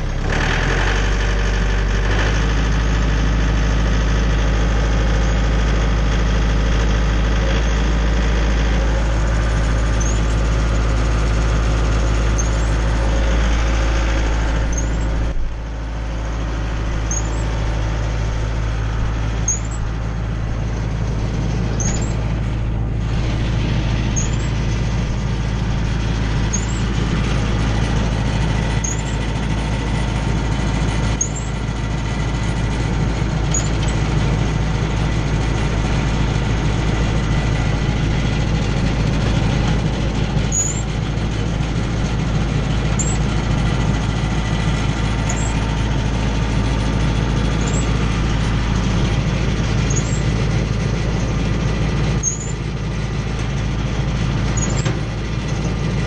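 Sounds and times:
tractor engine running wood chipper: 0.0s - 56.0s
faint high chirp: 10.0s - 10.2s, 14.7s - 15.0s, 17.1s - 17.4s, 19.5s - 19.8s, 21.8s - 22.2s, 49.9s - 50.2s, 52.2s - 52.6s.

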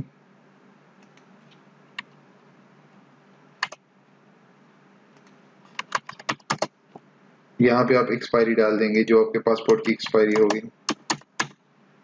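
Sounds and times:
faint steady hiss: 0.0s - 12.0s
computer mouse and keyboard clicks: 5.2s - 6.7s, 9.6s - 11.6s.

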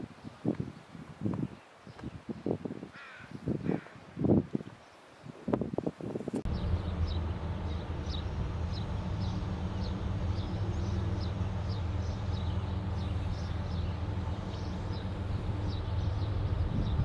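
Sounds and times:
diesel locomotive idling: 6.5s - 17.0s.

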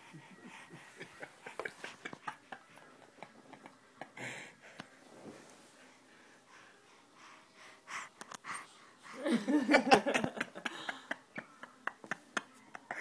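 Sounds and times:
baby panting noisily: 0.0s - 2.8s, 5.9s - 9.5s.

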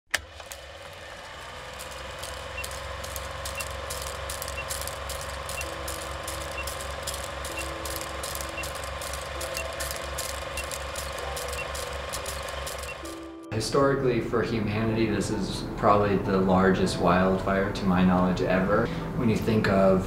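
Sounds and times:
film projector clattering: 0.1s - 13.2s
crackle: 0.4s - 13.1s
short high beeps: 2.5s - 13.1s.

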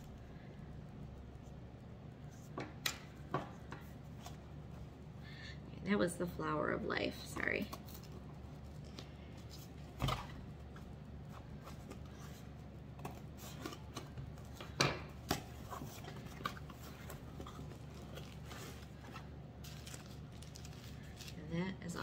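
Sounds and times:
packing material rustling: 7.8s - 22.0s.

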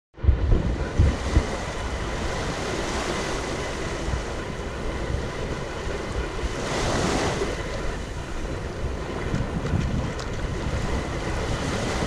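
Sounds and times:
low thumps: 0.2s - 2.4s
ocean surf washing on beach: 0.2s - 12.0s
wind on microphone: 0.2s - 12.0s.

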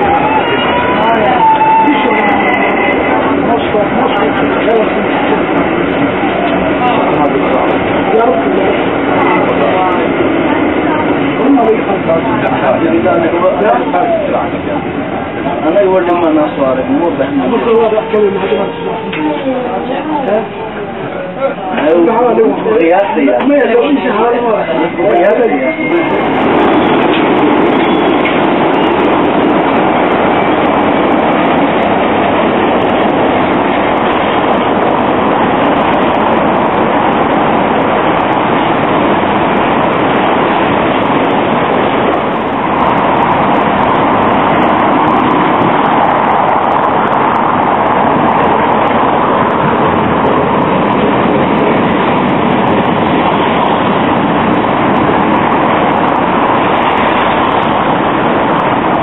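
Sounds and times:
city traffic: 0.0s - 59.0s
trams rumbling and hissing: 0.0s - 59.0s.

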